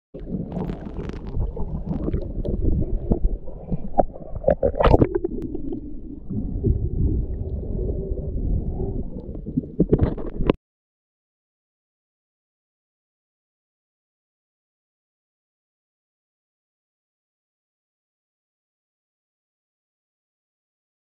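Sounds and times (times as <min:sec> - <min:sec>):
clicks and crackles: 0:00.2 - 0:05.8, 0:09.2 - 0:10.6
muffled underwater water rumble: 0:00.2 - 0:10.6.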